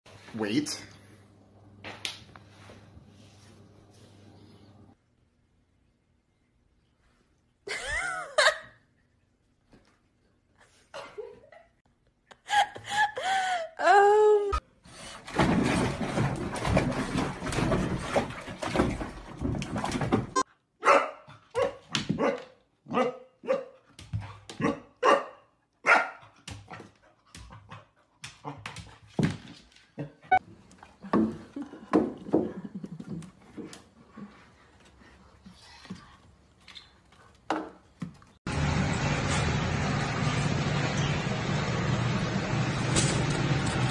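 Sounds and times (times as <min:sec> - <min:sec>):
dog barking and yipping: 0:20.8 - 0:23.8, 0:24.6 - 0:26.3.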